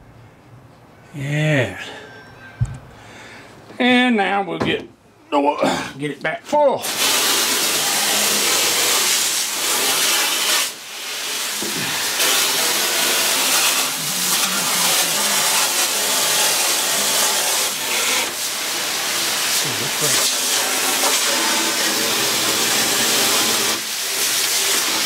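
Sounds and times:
hose water spraying into metal tank: 6.8 - 25.0.

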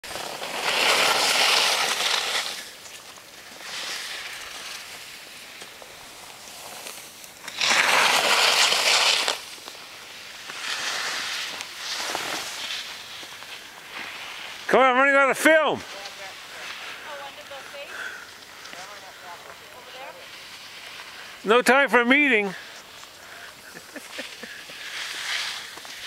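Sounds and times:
skis scraping over snow: 0.0 - 26.0.

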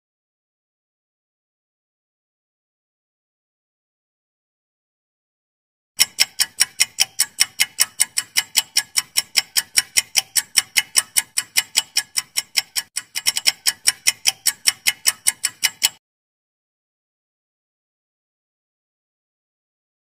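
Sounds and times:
clock-like timer ticking: 6.0 - 16.0.

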